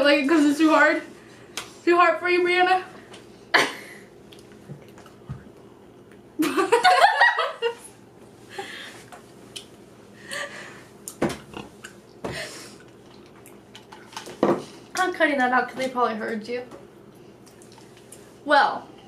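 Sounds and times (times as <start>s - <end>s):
girls laughing: 6.4s - 7.9s.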